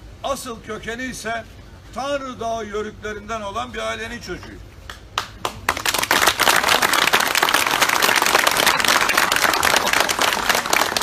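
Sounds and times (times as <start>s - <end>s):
crowd applauding: 5.2s - 11.0s.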